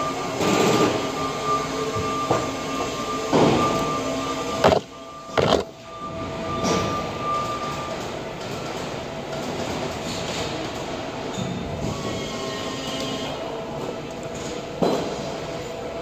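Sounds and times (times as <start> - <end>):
machine humming: 0.4 - 6.4
held tones: 3.7 - 5.8.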